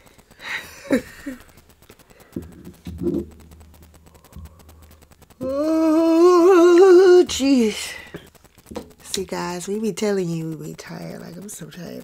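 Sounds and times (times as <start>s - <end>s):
person humming: 5.4s - 8.1s.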